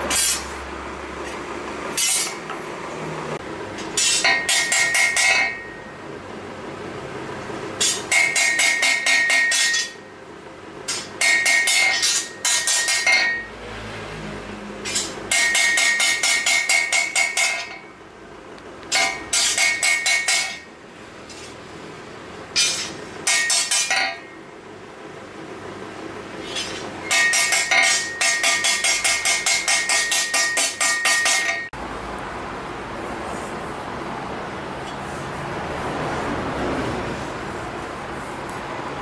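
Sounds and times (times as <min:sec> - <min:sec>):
hammer striking blade on anvil: 0:00.0 - 0:00.5, 0:02.0 - 0:02.6, 0:03.8 - 0:06.0, 0:07.8 - 0:10.1, 0:10.9 - 0:13.5, 0:14.8 - 0:18.0, 0:18.9 - 0:20.7, 0:22.6 - 0:24.4, 0:26.4 - 0:31.8.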